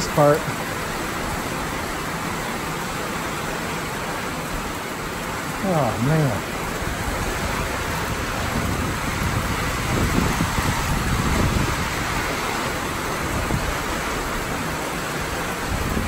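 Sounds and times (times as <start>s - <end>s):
heavy rain pouring: 0.0s - 16.0s
low rumbling: 4.8s - 16.0s.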